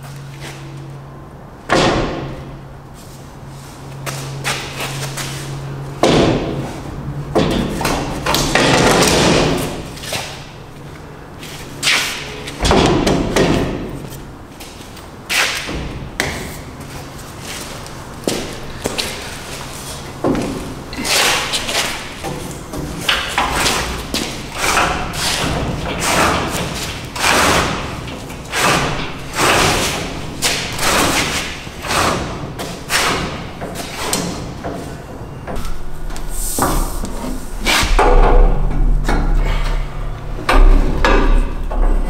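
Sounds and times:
metal parts thudding and scraping: 20.3 - 42.0
low steady hum: 35.0 - 42.0.

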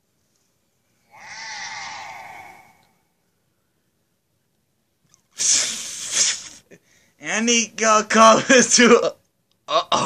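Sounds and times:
loud breathy hiss: 1.0 - 3.2, 5.4 - 7.1
voice making breathy sigh: 1.0 - 3.2.

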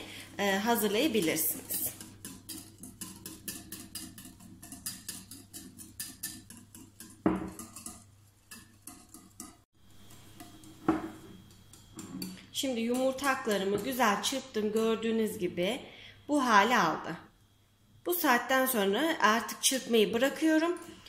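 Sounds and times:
whisk beating in a bowl: 0.2 - 15.0
whisk knocking bowl: 0.5 - 15.0.

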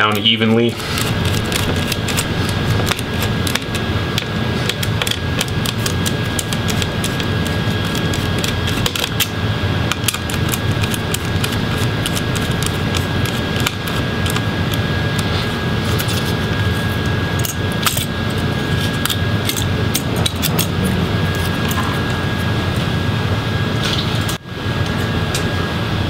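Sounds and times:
steady background hum: 0.0 - 26.0
screwdriver clicking on screws: 0.1 - 9.3, 9.9 - 15.3.

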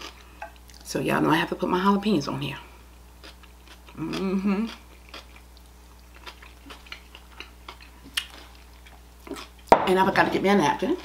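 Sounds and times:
woman humming mmm: 3.9 - 4.8.

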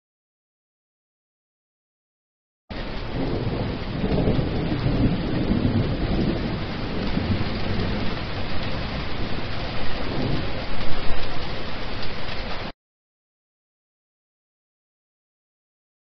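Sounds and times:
thunder rumbling: 2.7 - 12.7
heavy rain on hard surface: 2.7 - 12.8.

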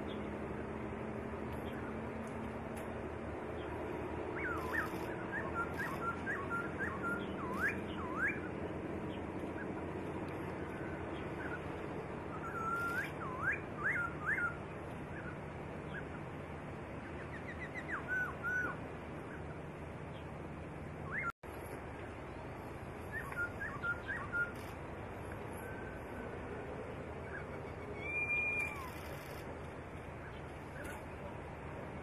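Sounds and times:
bird singing whistled notes: 4.3 - 9.8, 10.4 - 16.2, 17.1 - 19.4, 21.0 - 21.3, 23.0 - 24.8, 27.2 - 29.4.

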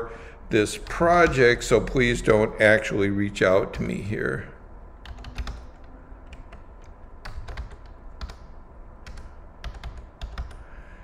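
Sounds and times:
computer keyboard typing: 0.8 - 2.3, 5.0 - 10.6.

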